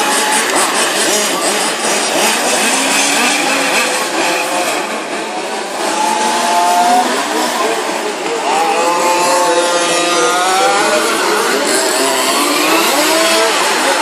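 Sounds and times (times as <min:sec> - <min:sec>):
engine whine passing close: 0:00.0 - 0:14.0
rc car engines racing: 0:00.0 - 0:14.0.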